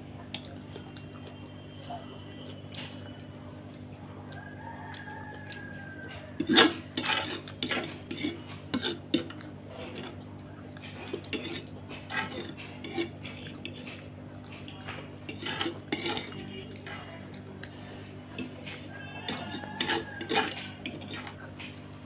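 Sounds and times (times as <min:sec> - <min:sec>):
fork scraping a plate: 0:06.0 - 0:10.2, 0:10.8 - 0:21.9.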